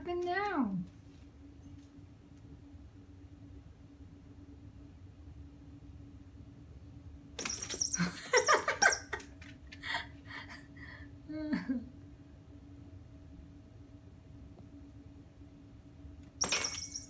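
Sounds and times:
person laughing: 0:08.0 - 0:11.9.

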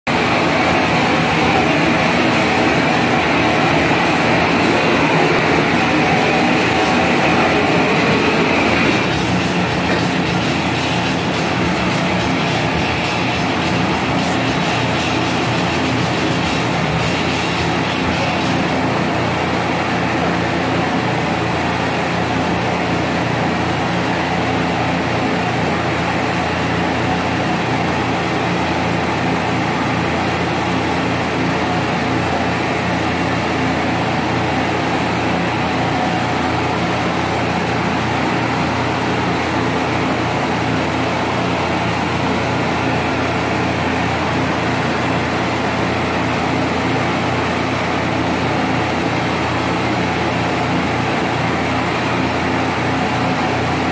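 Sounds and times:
gas torch flame rushing: 0:00.1 - 0:19.4.

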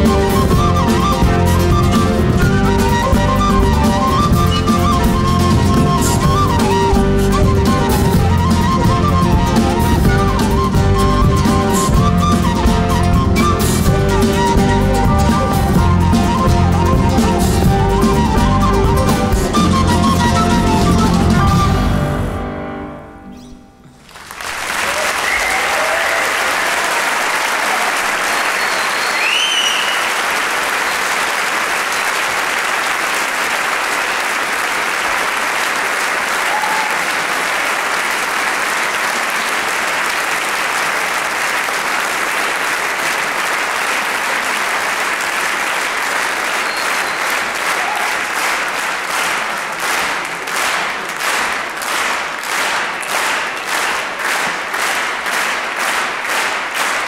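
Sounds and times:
rhythmic clapping in unison: 0:00.0 - 0:21.3, 0:24.0 - 0:57.0
audience applauding: 0:00.0 - 0:21.8, 0:23.9 - 0:57.0.

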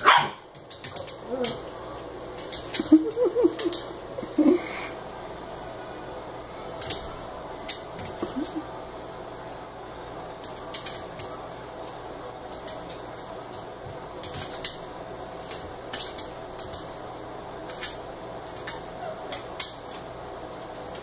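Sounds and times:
steady low hum: 0:00.4 - 0:21.0
dog claws clicking on tile floor: 0:00.5 - 0:04.0, 0:06.8 - 0:07.1, 0:10.4 - 0:21.0.

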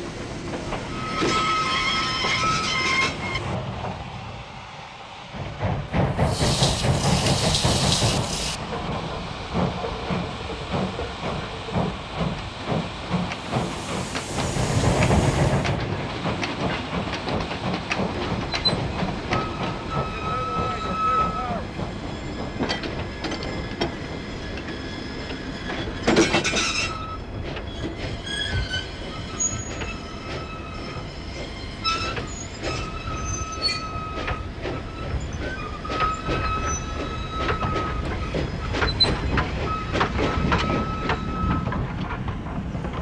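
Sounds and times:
wheel flanges squealing: 0:00.9 - 0:03.5, 0:18.5 - 0:21.6, 0:24.9 - 0:41.8.

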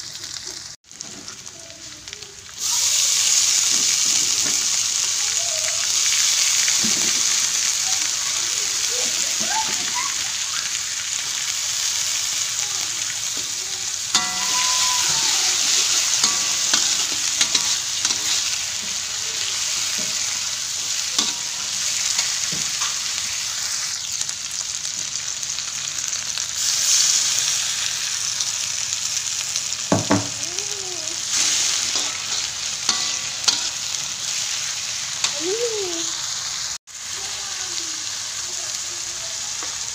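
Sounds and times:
vegetables sizzling in hot oil: 0:00.0 - 0:39.9
metal spatula scraping a wok: 0:14.1 - 0:20.4, 0:21.0 - 0:23.2, 0:31.3 - 0:34.5.

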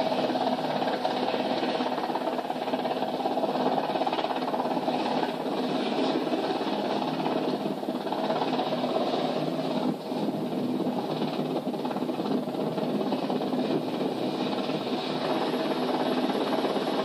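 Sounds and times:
helicopter hovering: 0:00.0 - 0:17.0.

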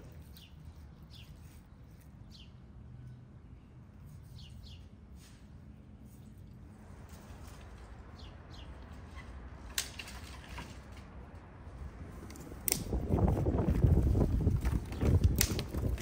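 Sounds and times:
bird chirps: 0:00.2 - 0:04.9
dry twigs rustling and clicking: 0:08.8 - 0:11.5, 0:12.2 - 0:13.4, 0:14.0 - 0:16.0.

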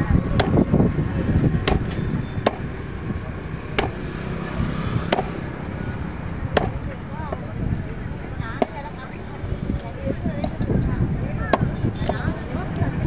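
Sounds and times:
knife chopping on wooden block: 0:01.6 - 0:02.6, 0:03.8 - 0:04.0.

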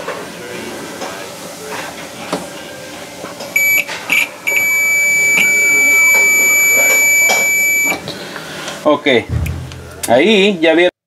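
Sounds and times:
multimeter continuity beeps: 0:03.6 - 0:08.0.

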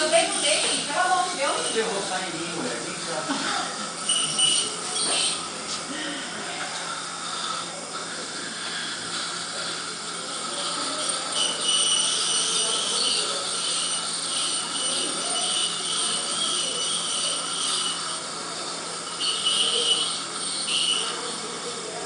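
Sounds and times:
dental drill whining: 0:00.0 - 0:22.0.

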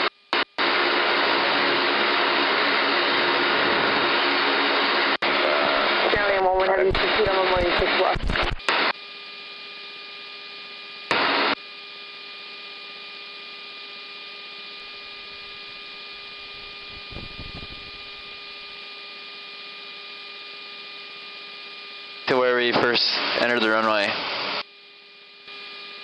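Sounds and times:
static burst: 0:03.0 - 0:08.9, 0:16.3 - 0:18.6
radio hiss: 0:05.2 - 0:08.9, 0:16.5 - 0:18.4, 0:22.3 - 0:24.6
faint hum tones: 0:14.0 - 0:22.3.

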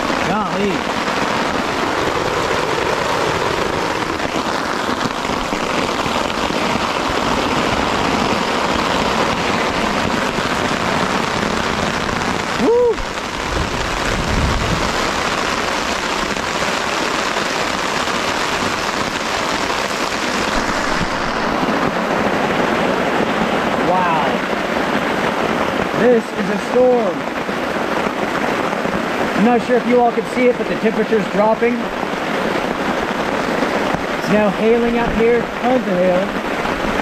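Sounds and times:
heavy rain and hail pelting: 0:00.0 - 0:37.0
man whooping: 0:12.6 - 0:13.1
low rumble: 0:12.6 - 0:16.4.

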